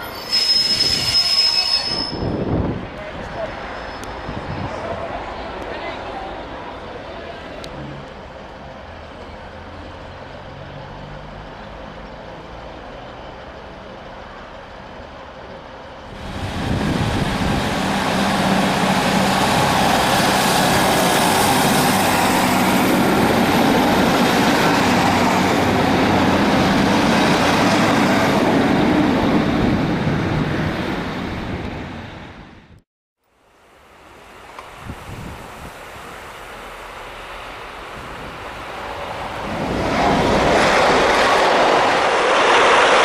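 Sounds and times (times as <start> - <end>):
train diesel engine: 0.0 - 32.8, 33.6 - 43.0
train wheel noise: 12.9 - 32.4, 34.2 - 43.0.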